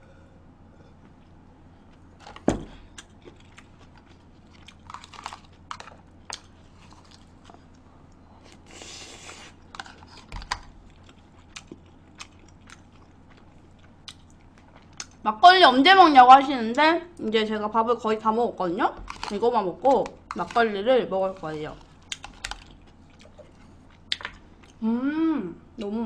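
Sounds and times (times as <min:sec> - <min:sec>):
person chewing: 0:01.1 - 0:15.2, 0:21.2 - 0:24.8.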